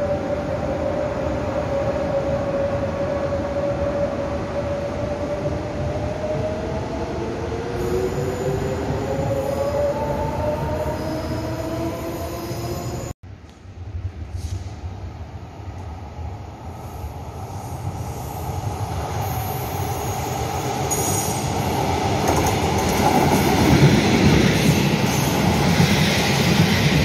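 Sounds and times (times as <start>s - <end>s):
train wheels on rails: 17.5s - 27.0s.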